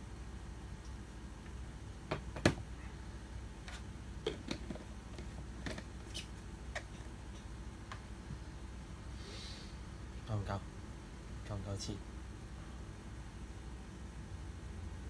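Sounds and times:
plastic blender being handled: 3.6s - 7.1s.

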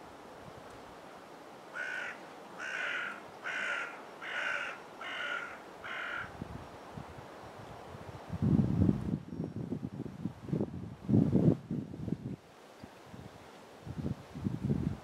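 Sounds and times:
bird cawing: 1.7s - 6.3s.

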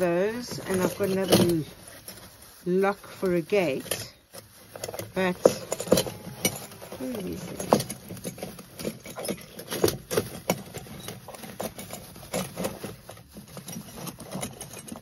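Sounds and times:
metal parts clinking: 0.0s - 15.0s
plastic bag crinkling: 0.0s - 15.0s.

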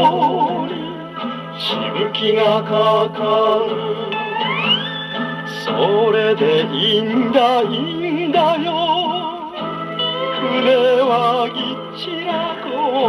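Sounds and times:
person singing with vibrato: 0.0s - 4.6s, 5.3s - 13.0s
band playing: 0.0s - 7.1s
gramophone record playing a song: 0.0s - 13.0s.

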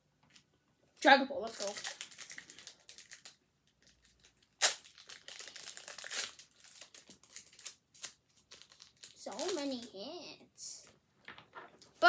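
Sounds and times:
foil ripping: 1.5s - 3.3s, 4.2s - 9.9s
foil wrapper crinkling: 1.5s - 10.0s.

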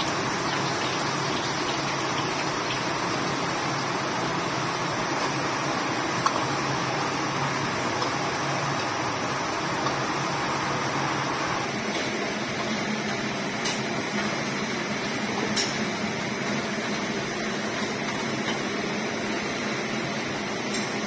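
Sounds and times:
garlic sizzling in oil: 0.0s - 14.7s.

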